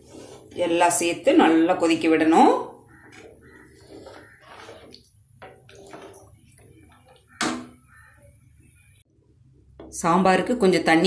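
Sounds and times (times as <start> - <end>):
spoon stirring liquid in a pot: 0.0 - 1.4, 2.2 - 9.0.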